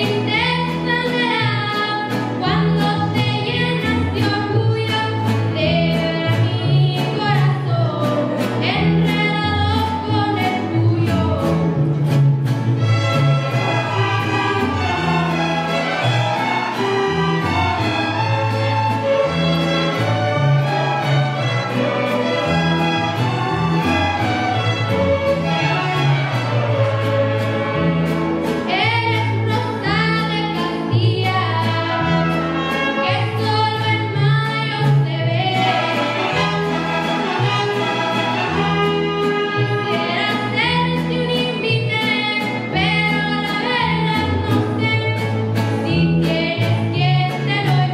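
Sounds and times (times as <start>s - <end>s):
girl singing lead vocal: 0.0s - 11.7s, 28.7s - 32.3s, 33.0s - 36.0s, 39.9s - 47.9s
mariachi violins: 0.0s - 47.9s
plucked bass line: 0.0s - 47.9s.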